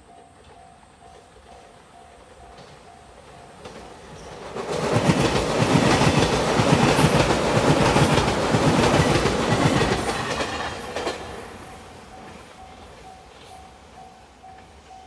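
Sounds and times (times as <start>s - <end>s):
train wheels clattering on rails: 0.0s - 15.0s.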